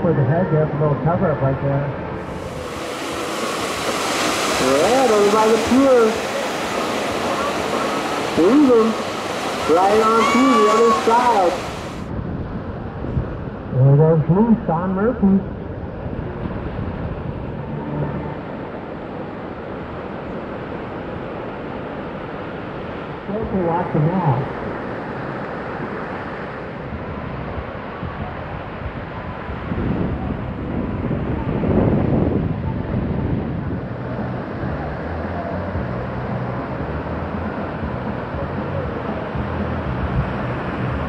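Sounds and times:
wind: 0:00.0 - 0:41.0
ocean surf breaking: 0:01.0 - 0:12.1, 0:15.4 - 0:41.0
breaking surf: 0:02.2 - 0:12.1.

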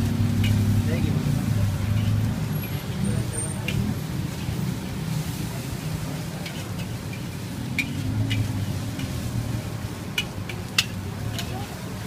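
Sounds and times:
car passing: 0:00.0 - 0:12.0
low rumble of street traffic: 0:00.0 - 0:12.0
spatula clinking against wok: 0:00.4 - 0:00.8, 0:01.8 - 0:04.6, 0:06.3 - 0:09.3, 0:09.9 - 0:12.0.

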